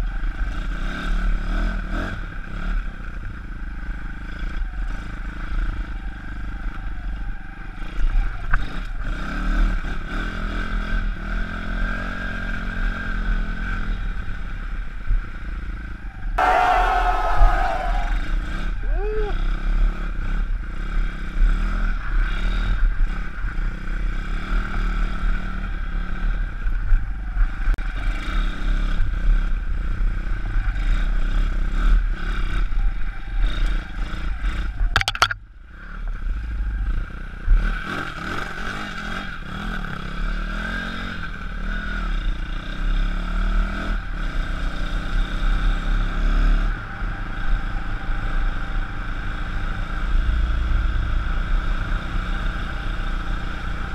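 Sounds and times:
motorbike engine revving: 16.4 - 23.1
sharp click: 35.0 - 35.4.

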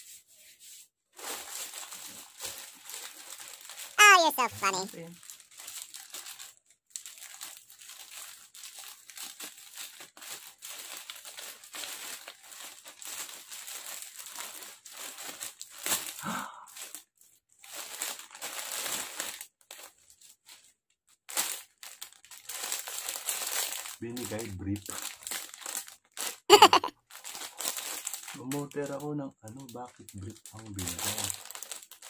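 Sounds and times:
plastic packaging crinkling: 1.2 - 3.9, 5.2 - 16.0, 17.7 - 19.9, 21.4 - 26.3, 27.1 - 28.6, 30.0 - 32.0.

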